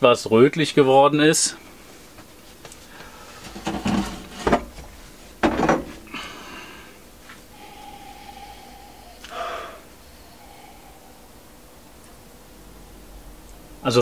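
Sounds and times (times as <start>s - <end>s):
man sniffing: 6.0s - 11.6s.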